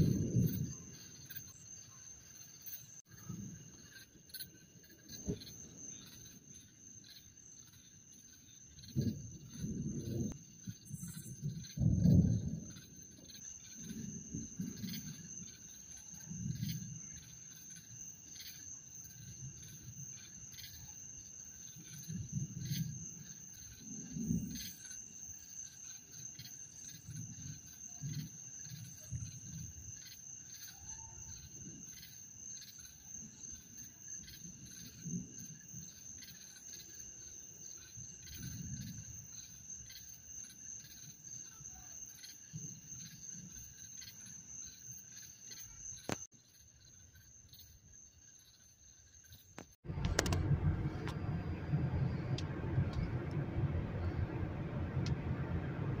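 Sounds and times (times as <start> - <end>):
crickets chirping: 0.0 - 56.0
click: 49.6 - 51.2, 55.0 - 55.2
low rumbles: 49.8 - 56.0.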